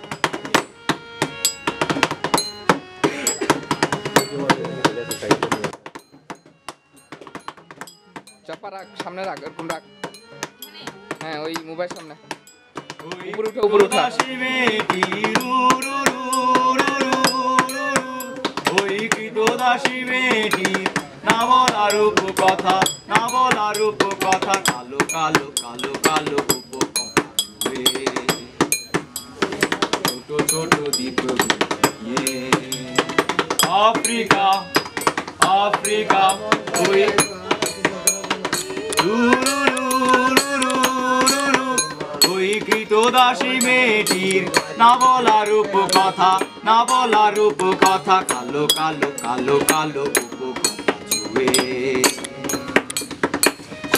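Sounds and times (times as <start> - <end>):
hands drumming on wooden table: 0.0 - 53.9
people singing together: 13.0 - 28.7, 30.0 - 53.0.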